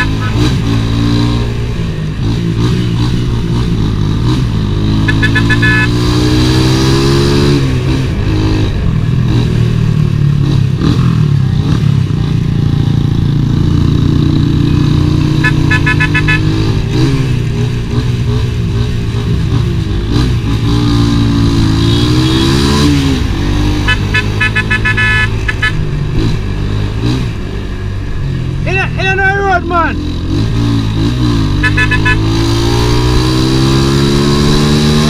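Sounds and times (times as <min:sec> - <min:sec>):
horn short toots: 0:00.0 - 0:00.6, 0:05.0 - 0:06.0, 0:15.3 - 0:16.7, 0:23.8 - 0:25.8, 0:31.6 - 0:32.5
motorcycle engine running: 0:00.0 - 0:06.1, 0:07.4 - 0:28.5, 0:30.0 - 0:35.0.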